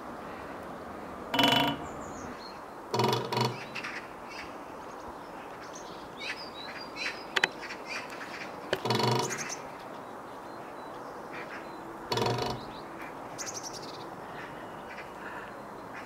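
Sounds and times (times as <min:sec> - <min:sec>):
woodpecker drumming on metal: 0:01.4 - 0:04.0, 0:08.7 - 0:09.6, 0:12.1 - 0:12.9.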